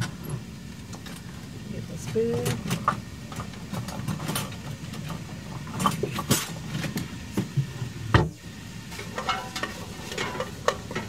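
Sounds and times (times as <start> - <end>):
steady low hum: 0.0 - 11.0
kitchen utensils clinking: 8.9 - 11.0.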